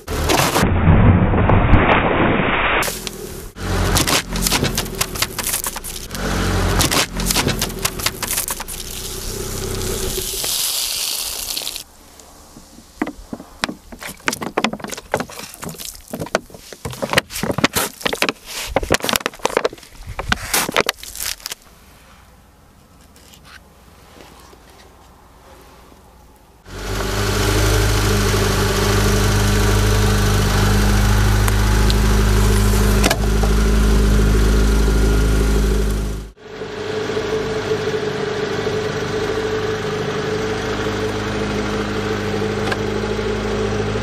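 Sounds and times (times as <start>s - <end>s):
car engine rumble: 0.0s - 44.0s
tyre crushing crunchy objects: 2.8s - 21.6s.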